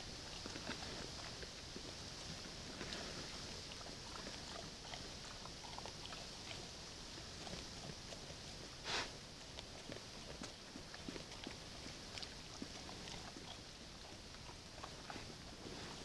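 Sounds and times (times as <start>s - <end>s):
bears eating with clicks and crunches: 0.0s - 16.0s
microphone hiss: 0.0s - 16.0s.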